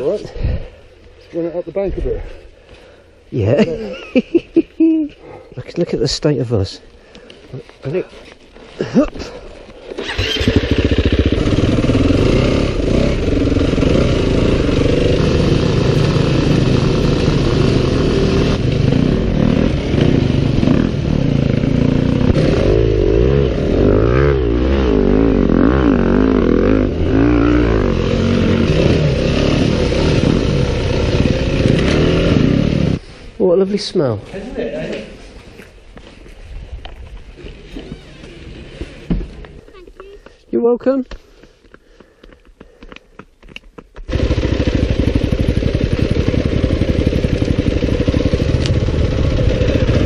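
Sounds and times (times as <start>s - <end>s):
dirt bike engine revving: 9.9s - 33.0s, 37.4s - 39.4s, 44.1s - 50.0s.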